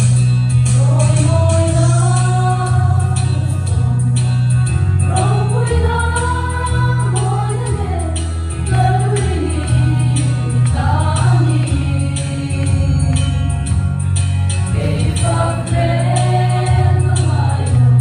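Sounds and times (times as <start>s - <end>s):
deep bass line: 0.0s - 18.0s
women's choir singing gospel: 5.1s - 13.4s, 14.6s - 18.0s.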